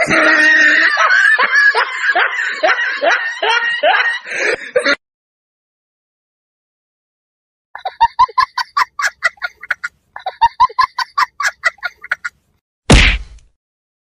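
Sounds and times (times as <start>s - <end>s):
loud hit sound effect: 12.9s - 13.4s.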